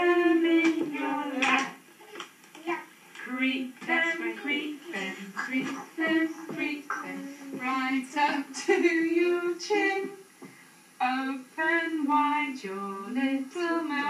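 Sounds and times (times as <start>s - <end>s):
woman singing: 0.0s - 1.8s, 3.2s - 10.2s, 11.0s - 14.0s
toddler singing: 0.0s - 2.9s, 3.8s - 10.1s.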